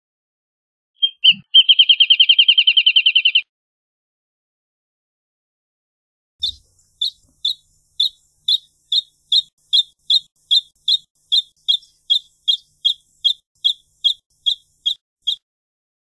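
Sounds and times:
bird singing high clear notes: 1.0s - 3.4s, 6.4s - 15.4s.

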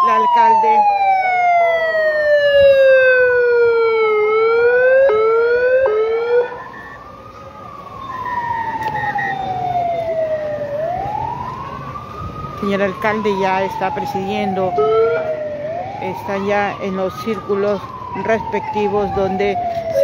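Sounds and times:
close siren wailing: 0.0s - 20.0s
distant siren wailing: 0.0s - 20.0s.

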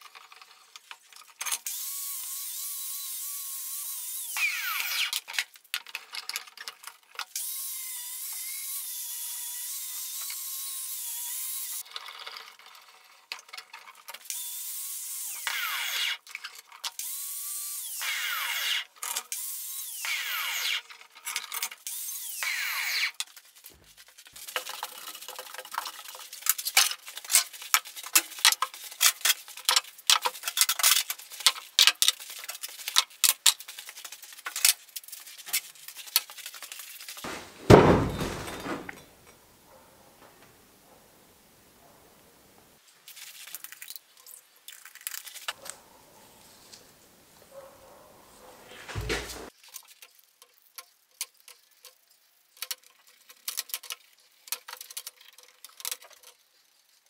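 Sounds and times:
electric drill with wire brush: 1.6s - 5.2s, 7.4s - 11.8s, 14.3s - 16.2s, 17.0s - 20.8s, 21.8s - 23.2s.

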